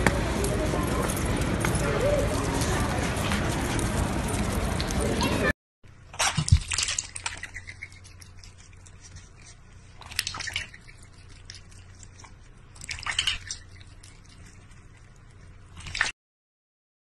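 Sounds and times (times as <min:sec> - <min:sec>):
water splashing in metal bowl: 0:06.2 - 0:08.3, 0:10.0 - 0:11.2, 0:12.8 - 0:13.9.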